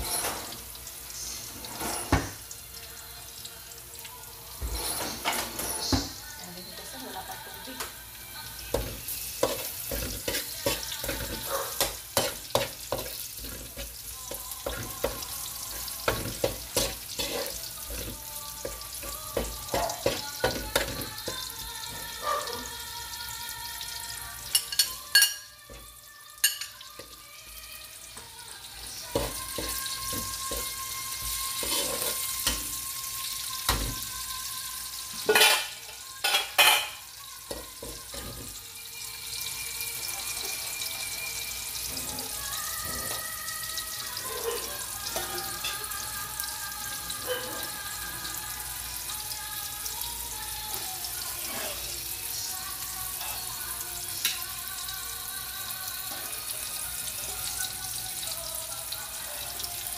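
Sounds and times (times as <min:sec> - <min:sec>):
garlic sizzling in hot oil: 0:00.0 - 0:59.9
metal spoon scraping wok: 0:09.0 - 0:18.1, 0:29.1 - 0:32.8.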